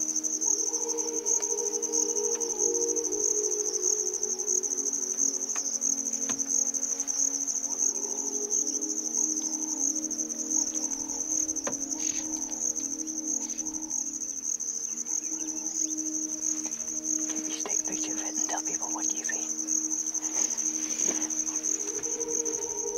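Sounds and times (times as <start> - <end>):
insects trilling: 0.0 - 22.9.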